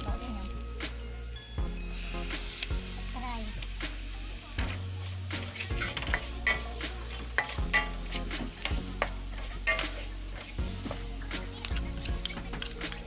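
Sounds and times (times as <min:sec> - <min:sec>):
frying sizzle: 0:00.0 - 0:13.0
metal spoon scraping a wok: 0:04.6 - 0:11.0
spoon knocking on wok: 0:05.8 - 0:10.5.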